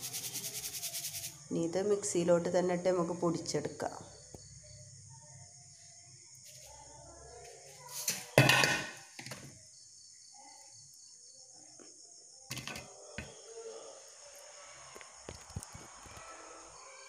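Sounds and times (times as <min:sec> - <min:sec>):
crickets chirping: 0:00.0 - 0:17.0
kitchen vessels clattering: 0:08.0 - 0:09.3.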